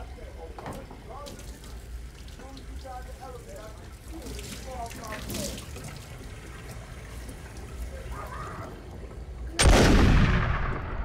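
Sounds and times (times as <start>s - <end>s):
low steady rumble: 0.0s - 11.0s
sudden loud burst of noise: 9.6s - 11.0s.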